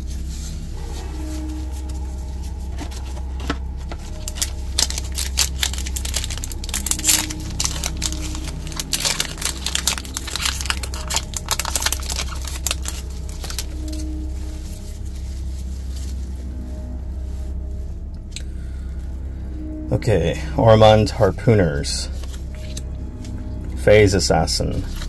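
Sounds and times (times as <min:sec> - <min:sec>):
wrapper tearing and crinkling: 0:00.8 - 0:16.2.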